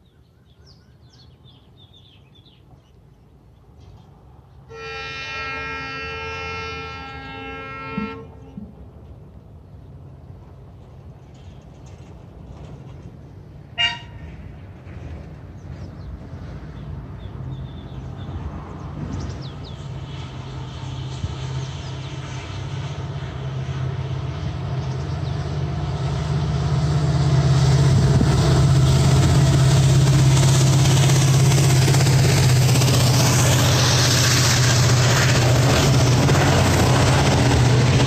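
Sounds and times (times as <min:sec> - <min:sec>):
diesel locomotive engine drone: 0:00.0 - 0:38.0
train wheels on rails: 0:07.9 - 0:38.0.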